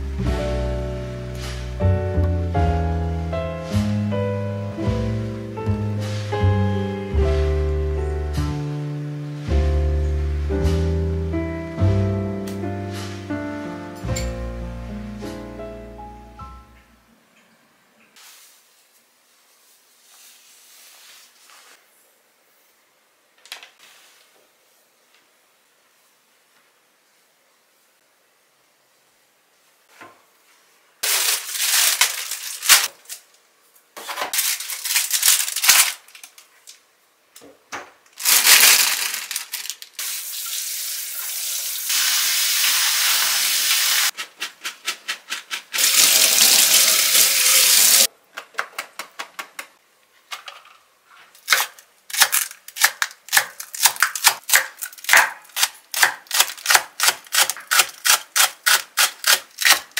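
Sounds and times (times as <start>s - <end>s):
tap water running: 40.0s - 44.2s, 45.8s - 48.1s.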